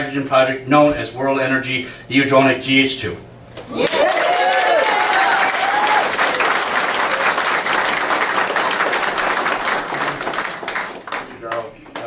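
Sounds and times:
audience clapping: 3.6 - 12.0.

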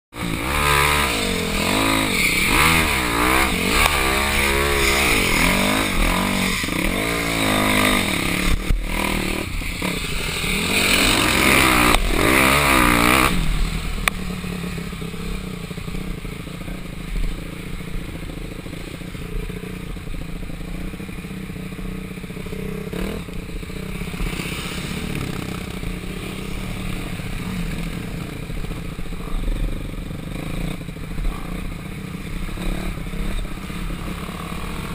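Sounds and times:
dirt bike engine revving: 0.1 - 34.9
rushing hiss: 24.0 - 27.7.

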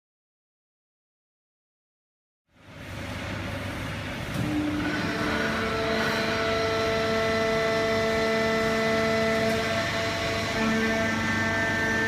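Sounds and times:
machine drone with hum: 2.5 - 12.0
machine whining tones: 4.3 - 12.0.

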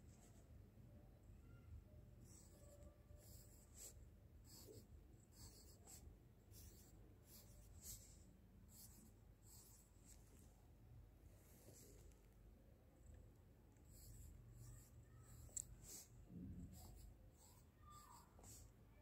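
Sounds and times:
pencil scratching on paper: 2.2 - 10.3, 13.8 - 18.7.

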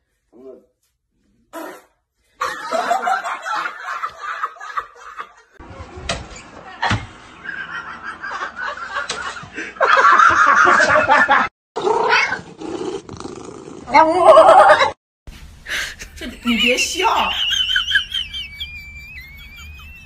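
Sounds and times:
man laughing hard: 15.8 - 20.0.

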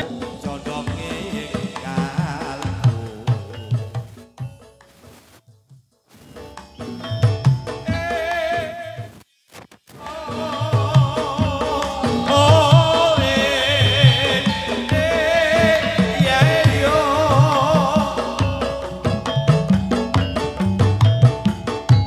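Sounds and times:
drum beat over loudspeakers: 10.2 - 22.0
wavering melodic line: 12.1 - 21.9.

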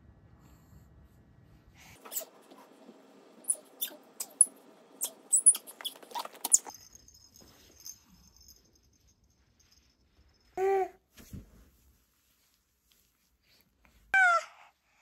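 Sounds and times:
baby squeaking: 2.0 - 2.4, 3.4 - 6.8, 14.2 - 14.5.

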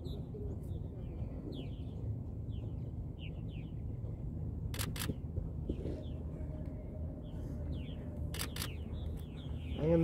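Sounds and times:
small birds chirping: 4.8 - 10.0.

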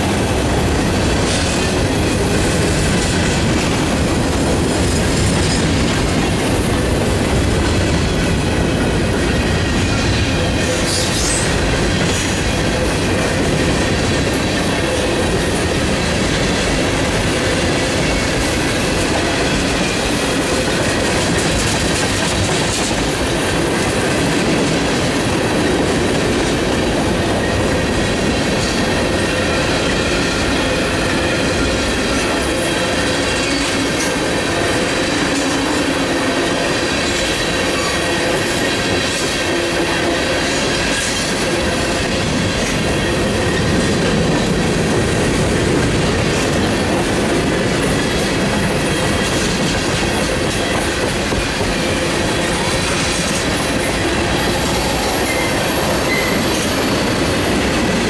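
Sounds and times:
clickety-clack over rail joints: 0.0 - 58.0
train wheels rumbling on rails: 0.0 - 58.0
wheel squeal: 54.4 - 56.8.

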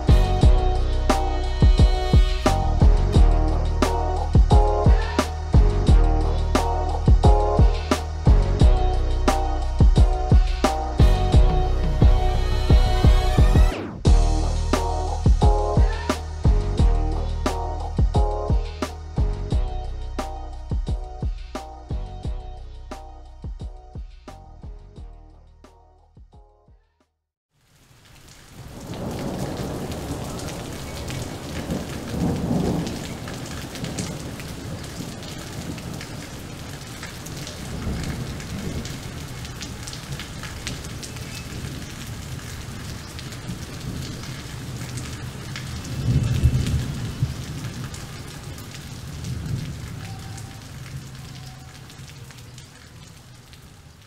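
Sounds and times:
steady rain: 0.0 - 22.1, 27.5 - 54.0
rolling thunder: 28.6 - 51.3.

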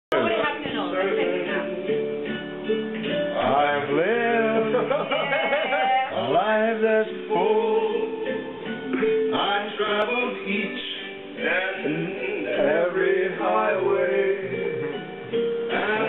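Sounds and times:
music with held chords: 0.1 - 16.0.

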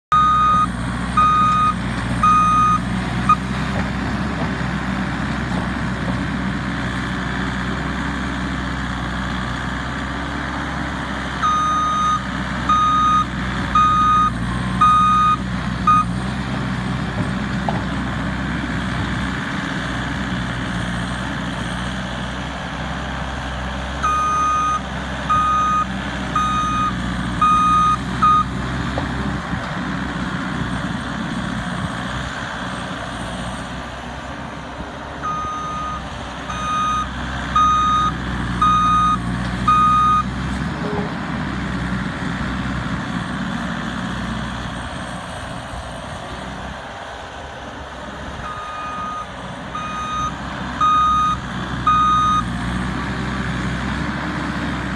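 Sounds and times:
diesel engine running: 0.0 - 54.9
reversing alarm beeps: 0.1 - 3.4, 11.4 - 16.1, 24.0 - 28.5, 35.2 - 40.3, 48.4 - 52.5.

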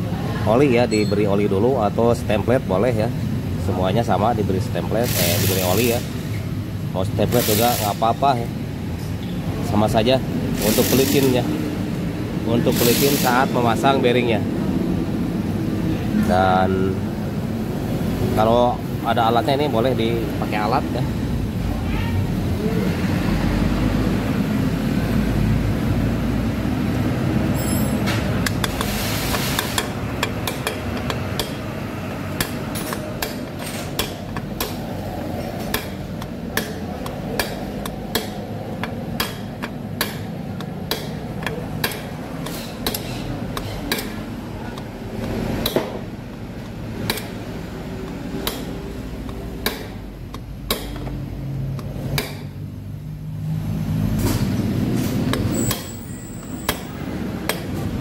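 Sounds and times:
hammer tapping metal rod: 27.6 - 52.5, 55.3 - 57.9.

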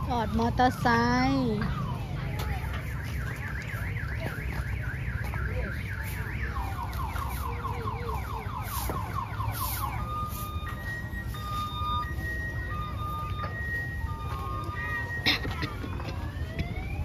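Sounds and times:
electronic alarm siren: 0.0 - 17.0
electronic beeping: 9.6 - 15.2.

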